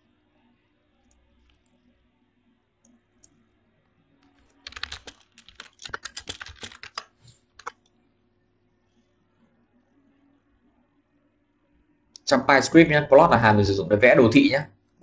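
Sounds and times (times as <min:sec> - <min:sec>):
computer keyboard typing: 0:04.3 - 0:07.9.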